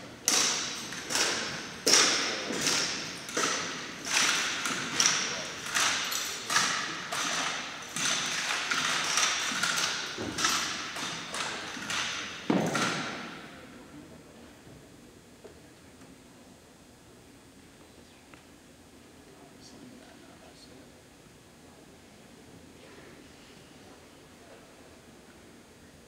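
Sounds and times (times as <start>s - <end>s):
rifles knocking in unison: 0.3s - 13.3s.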